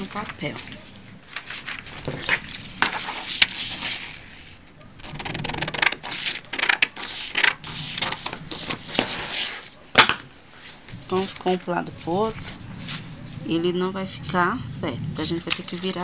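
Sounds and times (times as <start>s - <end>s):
paper rustling: 0.0s - 13.6s, 15.2s - 16.0s
scissors cutting paper: 5.0s - 9.5s, 15.2s - 16.0s.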